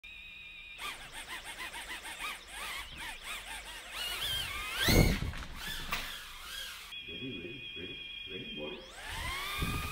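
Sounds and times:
micro drone motors whining: 0.4 - 7.0, 8.9 - 9.9.

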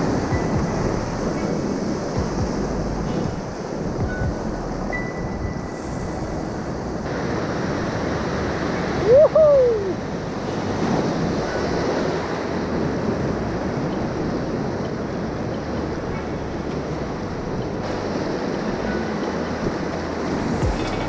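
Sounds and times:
river rushing through rapids: 0.0 - 21.0
wind buffeting microphone: 0.0 - 21.0
person shouting: 9.0 - 10.0.

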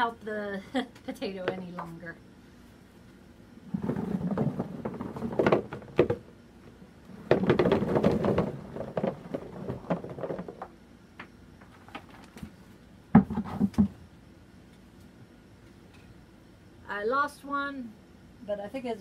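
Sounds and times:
potatoes tumbling into plastic box: 3.6 - 14.0.

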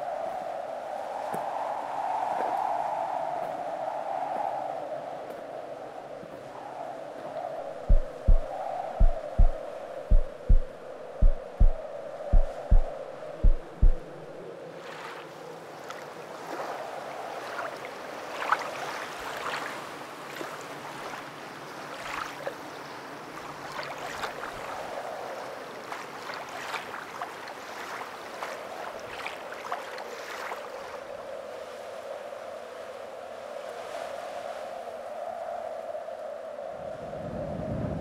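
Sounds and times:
water rushing and splashing: 7.7 - 14.4
deep thump: 7.8 - 14.1.

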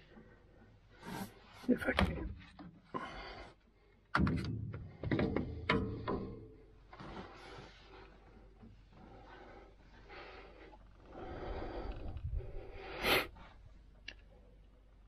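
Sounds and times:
hoses and metal parts scraping: 0.0 - 1.9, 5.8 - 11.1.

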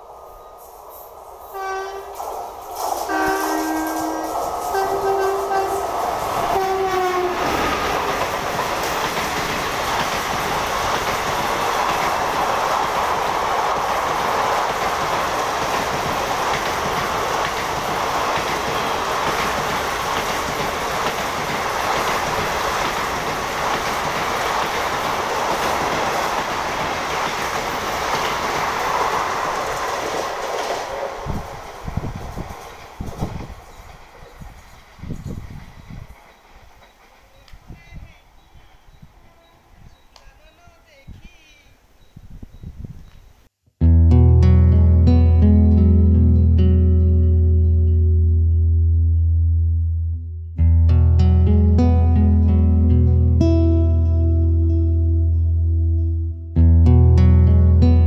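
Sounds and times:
train wheels clattering past: 0.6 - 37.5
train horn blasts: 1.5 - 2.2, 3.0 - 7.6, 18.7 - 19.2.

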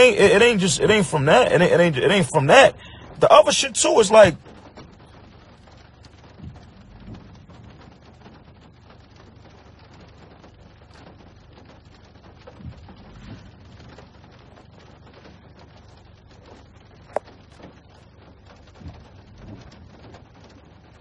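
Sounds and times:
faint steady hiss: 0.0 - 21.0
soft low thumps: 4.2 - 8.8, 12.6 - 14.0.

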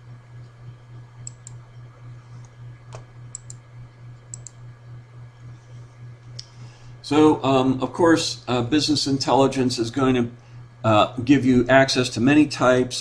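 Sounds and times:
low electrical hum: 0.0 - 13.0
computer clicks: 1.2 - 1.6, 2.9 - 3.6, 4.3 - 4.6.

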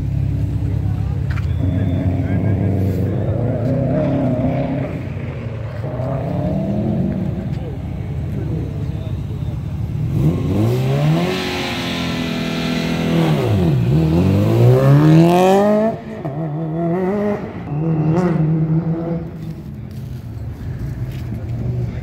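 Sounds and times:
car accelerating hard: 1.6 - 9.1, 10.0 - 19.7.

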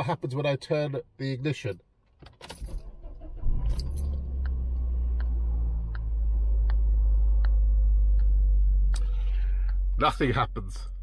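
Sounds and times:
car engine starting and idling: 2.4 - 11.0
keys jangling: 3.7 - 4.2.

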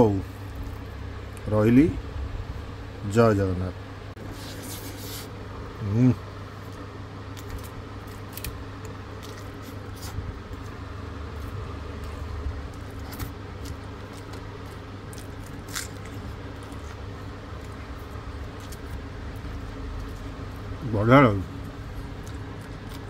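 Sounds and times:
steady low hum: 0.0 - 23.0
foil crinkles: 12.7 - 20.5.

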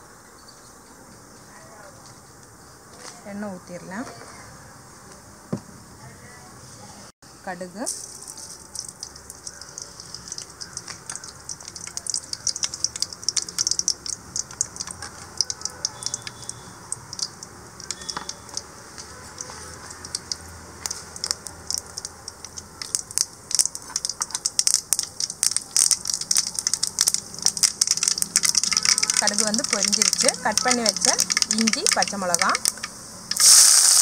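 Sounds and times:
oil sizzling: 7.8 - 34.0
seeds popping in hot oil: 7.8 - 34.0.

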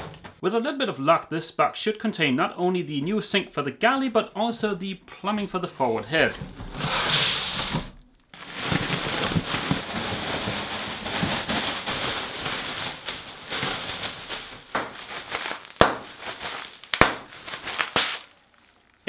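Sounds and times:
plastic air cushions crinkling: 5.8 - 19.0
sharp snap: 17.9 - 18.3.

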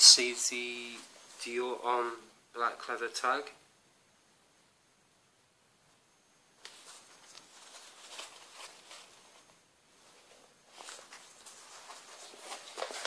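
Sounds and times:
denim fabric rustling: 6.6 - 13.0.

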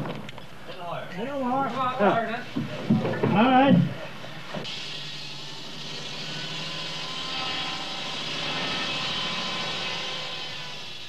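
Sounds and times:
circular saw cutting wood: 4.6 - 11.0.

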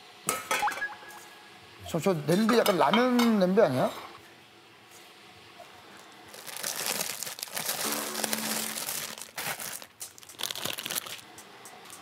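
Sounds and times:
plastic packets rustling and crinkling: 6.3 - 12.0.

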